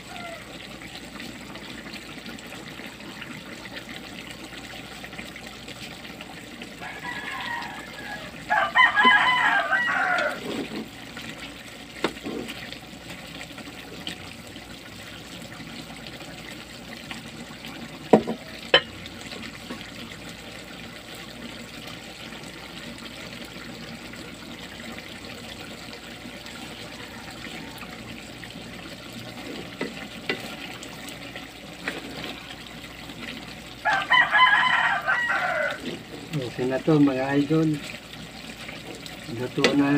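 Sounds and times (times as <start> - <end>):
rooster crowing: 0.0 - 0.5, 6.8 - 10.6, 26.5 - 28.4, 33.8 - 36.0
sauce simmering in a pan: 0.0 - 39.9.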